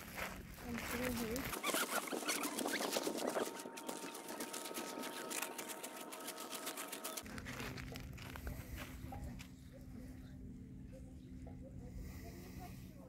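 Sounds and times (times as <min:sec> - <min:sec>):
footsteps crunching on pebbles: 0:00.0 - 0:09.5.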